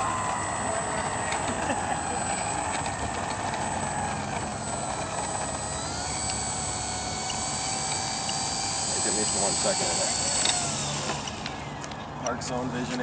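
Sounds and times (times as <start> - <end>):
model plane motor whining: 0.0 - 13.0.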